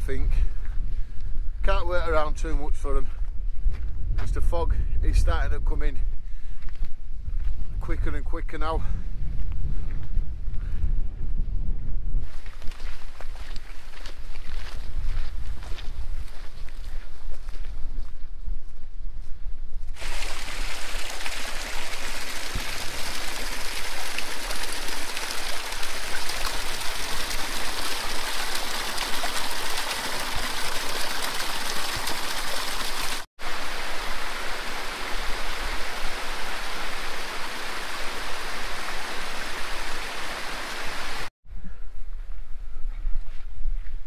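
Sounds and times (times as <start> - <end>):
wind rumble on microphone: 0.0 - 23.6, 41.5 - 44.0
stream rushing over rocks: 20.0 - 41.3.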